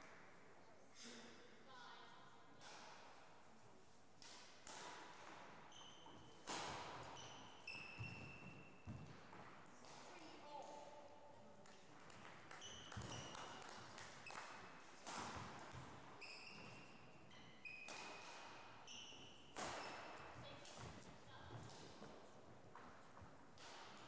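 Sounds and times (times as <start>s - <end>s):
racket hitting shuttlecock: 2.6s - 3.2s, 4.2s - 10.7s, 11.6s - 16.9s, 17.8s - 18.9s, 19.5s - 24.0s
shoes squeaking on floor: 5.6s - 9.3s, 12.5s - 14.6s, 15.7s - 20.6s.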